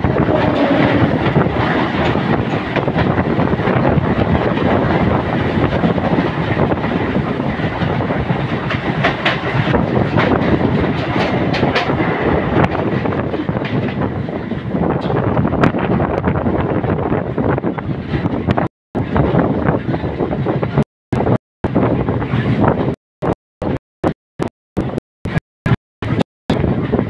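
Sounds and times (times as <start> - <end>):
passing train wheels rumbling: 0.0 - 20.8
clickety-clack over rail joints: 0.0 - 23.8
train running and wind rush: 0.0 - 27.0.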